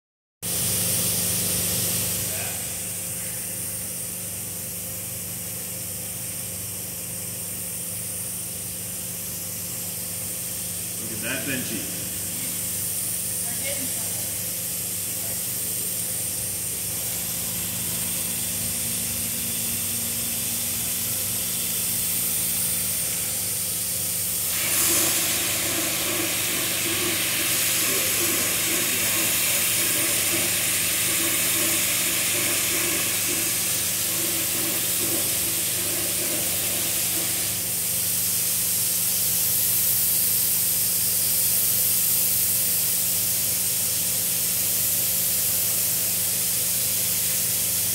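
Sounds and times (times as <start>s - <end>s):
loud hiss: 1.0s - 4.2s, 8.6s - 47.9s
robotic printer humming: 24.6s - 37.6s.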